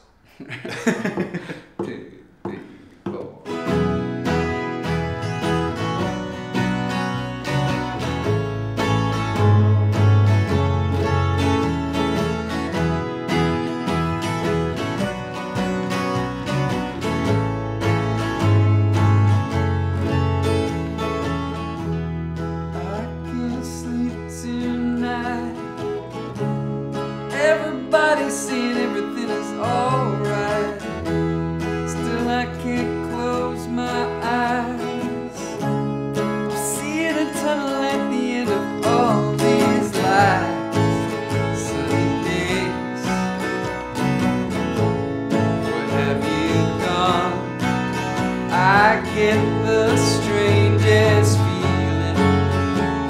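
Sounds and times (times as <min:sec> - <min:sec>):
man singing: 0:00.8 - 0:03.7, 0:22.7 - 0:26.0, 0:27.3 - 0:43.3, 0:45.4 - 0:53.0
acoustic guitar strummed chords: 0:00.8 - 0:53.0
electric bass line: 0:03.7 - 0:24.0, 0:38.8 - 0:53.0.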